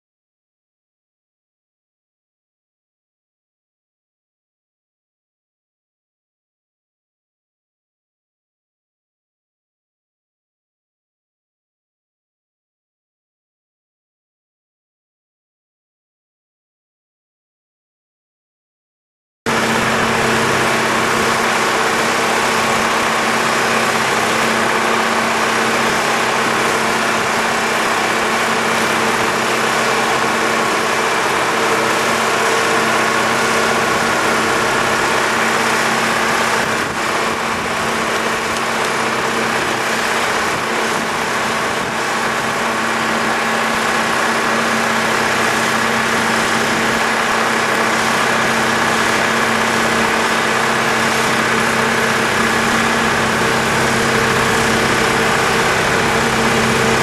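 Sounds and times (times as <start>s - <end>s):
engine humming steadily: 19.5s - 57.0s.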